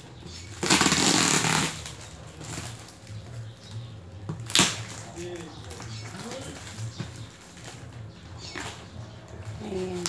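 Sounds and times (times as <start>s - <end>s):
tape ripping: 0.4s - 3.2s, 4.3s - 8.8s.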